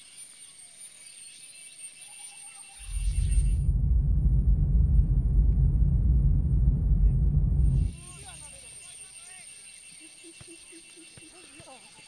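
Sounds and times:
loud deep rumble: 0:02.9 - 0:08.0
high insect drone: 0:07.8 - 0:12.0.

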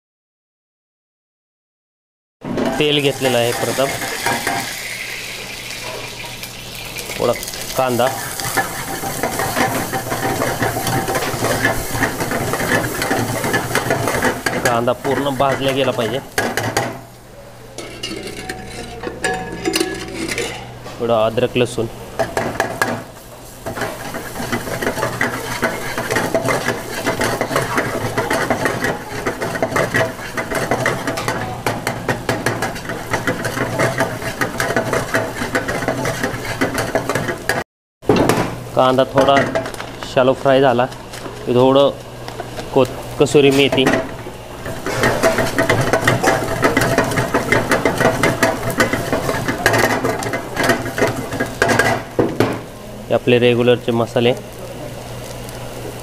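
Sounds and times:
low mechanical hum: 0:02.4 - 0:56.0
onion frying: 0:02.8 - 0:19.0, 0:19.6 - 0:56.0
stirring and scraping in pan: 0:03.1 - 0:17.1, 0:17.8 - 0:20.8, 0:22.2 - 0:37.6, 0:40.9 - 0:52.2.

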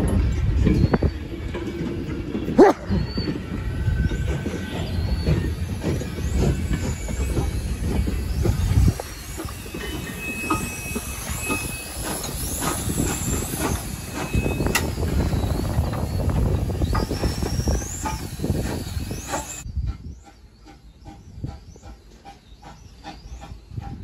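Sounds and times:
wheels clicking over rail joints: 0:00.0 - 0:24.0
high-pitched wheel squeals: 0:02.6 - 0:19.7.

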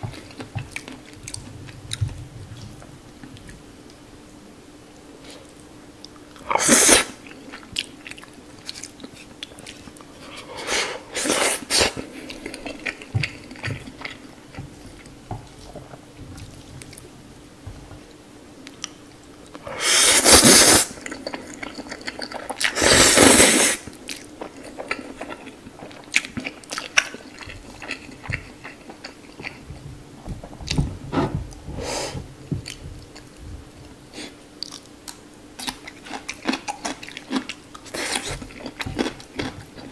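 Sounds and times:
wet chewing: 0:00.0 - 0:03.6, 0:21.0 - 0:22.8, 0:24.0 - 0:29.8, 0:34.2 - 0:39.9
noodles slurped: 0:19.8 - 0:23.8.

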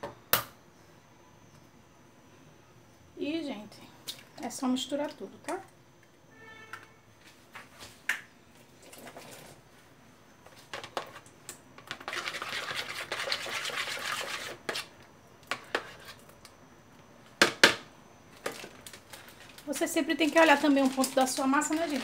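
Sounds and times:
metal spoon scraping plastic bowl: 0:11.9 - 0:15.0.

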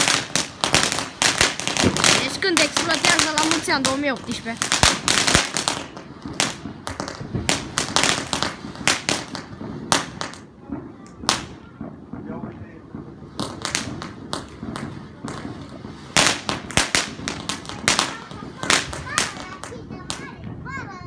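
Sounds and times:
firecrackers cracking: 0:00.0 - 0:21.0.

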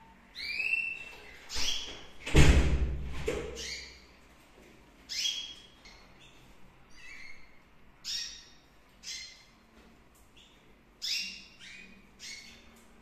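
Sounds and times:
canary chicks calling: 0:00.3 - 0:02.1, 0:03.6 - 0:04.1, 0:05.1 - 0:09.6, 0:10.4 - 0:12.8.

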